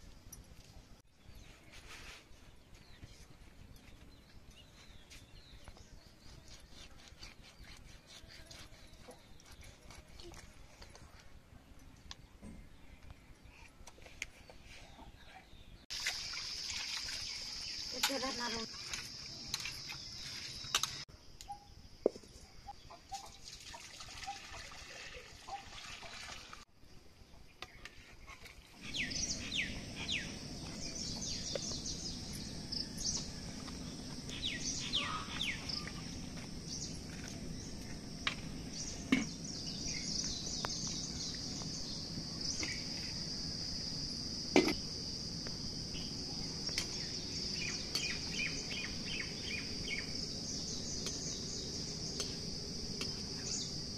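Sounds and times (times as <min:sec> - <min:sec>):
birds chirping: 0:27.6 - 0:43.7, 0:45.9 - 0:53.9.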